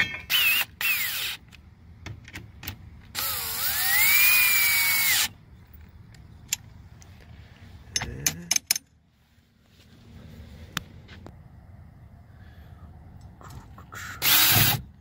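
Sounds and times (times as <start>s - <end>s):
cordless drill whining: 0.3s - 1.4s, 3.1s - 5.3s, 14.2s - 14.8s.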